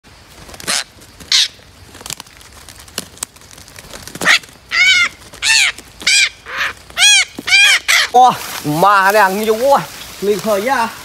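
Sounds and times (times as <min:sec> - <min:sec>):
parrots screeching: 0:00.7 - 0:01.6, 0:04.2 - 0:08.2.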